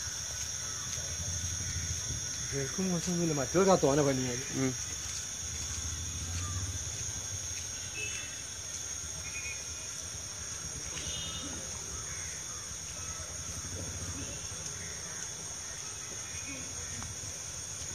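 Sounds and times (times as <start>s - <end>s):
high-pitched insect chorus: 0.0s - 17.9s
short bird calls: 10.8s - 12.7s.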